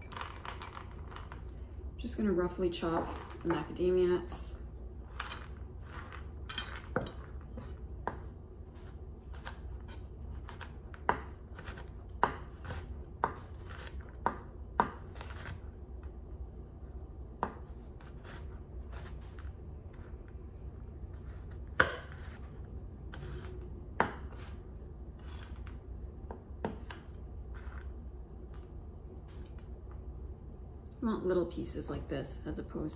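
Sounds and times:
low steady hum: 0:00.0 - 0:32.9
knife chopping nuts on board: 0:10.3 - 0:15.6.

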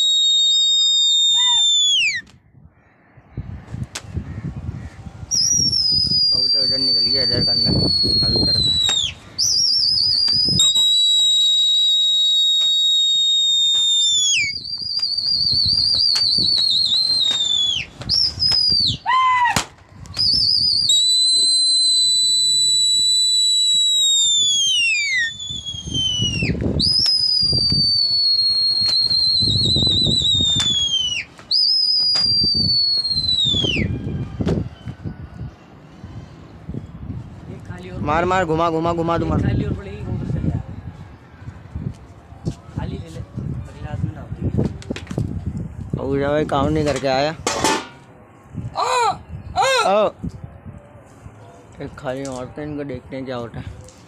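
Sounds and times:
person whistling loudly: 0:00.0 - 0:02.3, 0:05.3 - 0:19.4, 0:20.1 - 0:34.1.

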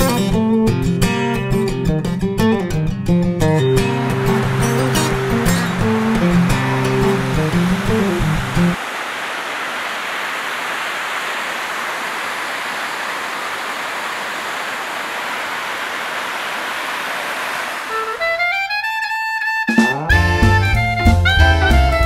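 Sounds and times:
music: 0:00.0 - 0:08.8, 0:17.9 - 0:22.0
waterfall rushing: 0:03.8 - 0:18.8.

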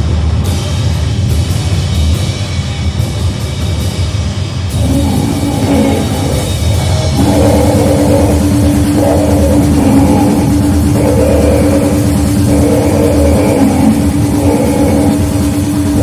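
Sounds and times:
harsh distorted noise music: 0:04.4 - 0:16.0
steady droning tone: 0:04.6 - 0:16.0.

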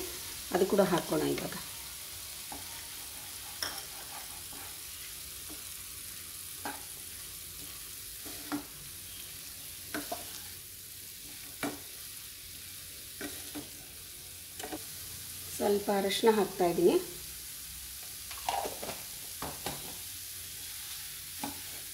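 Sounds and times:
food sizzling in a frying pan: 0:00.0 - 0:21.9
spatula knocking and scraping pan: 0:02.5 - 0:04.8, 0:09.9 - 0:10.4, 0:21.4 - 0:21.9.

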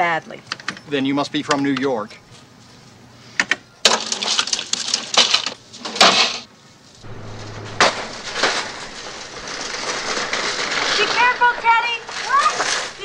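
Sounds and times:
knocks and rustling: 0:04.1 - 0:13.0
steady outdoor hum: 0:05.4 - 0:13.0.

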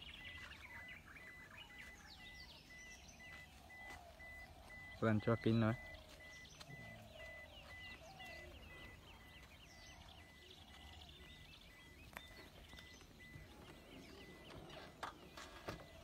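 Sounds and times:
faint bird chirps: 0:00.0 - 0:16.0.

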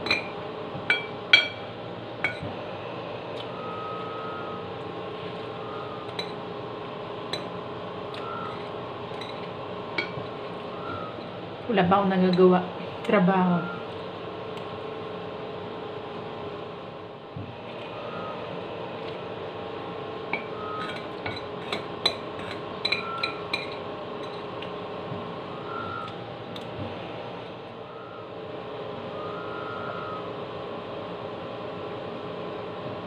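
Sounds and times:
spoon clinking against bowl: 0:00.0 - 0:01.6, 0:06.1 - 0:06.4, 0:08.5 - 0:10.2, 0:20.4 - 0:24.5
steady hum: 0:00.0 - 0:33.0.

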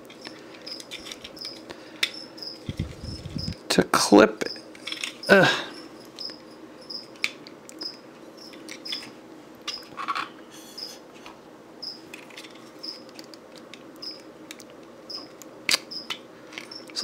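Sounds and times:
plastic pieces snapping: 0:15.4 - 0:17.0.

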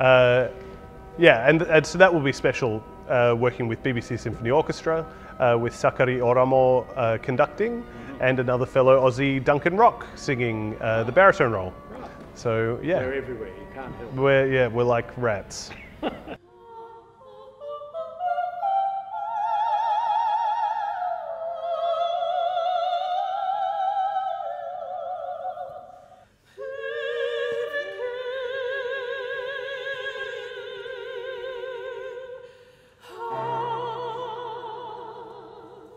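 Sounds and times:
operatic soprano singing: 0:00.0 - 0:15.2, 0:16.2 - 0:35.9
low steady notes: 0:00.0 - 0:16.4.

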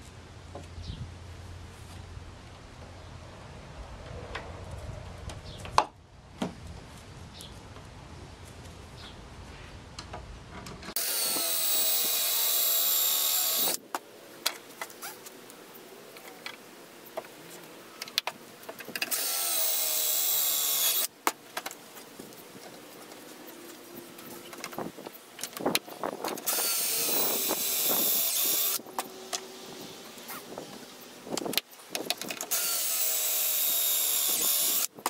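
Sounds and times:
cordless drill motor whine: 0:11.0 - 0:13.8, 0:26.5 - 0:28.8, 0:32.5 - 0:34.9.

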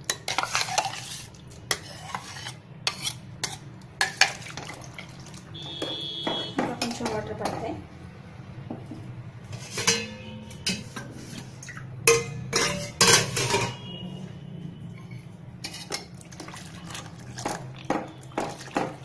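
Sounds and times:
steel plates and lids clanking: 0:09.5 - 0:13.8.

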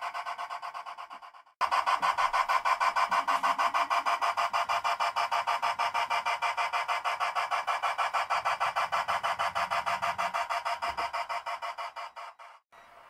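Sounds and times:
model steam locomotive chuffing: 0:00.0 - 0:13.0.

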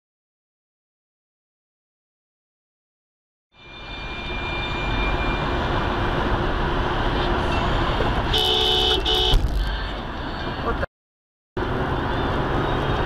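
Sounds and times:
car road and engine noise: 0:03.6 - 0:10.9, 0:11.6 - 0:13.0
car horn: 0:07.4 - 0:09.5.

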